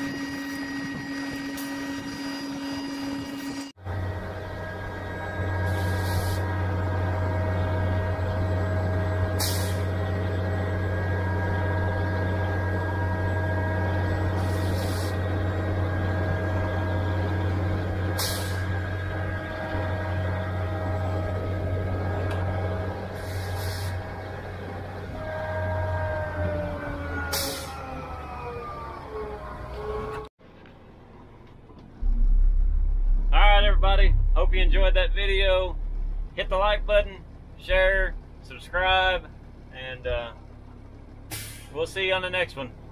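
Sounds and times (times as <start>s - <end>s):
hydraulic whine: 0.0s - 30.3s, 32.0s - 41.8s
pump truck engine humming: 3.8s - 30.2s, 31.7s - 42.9s
short hisses: 41.3s - 41.7s.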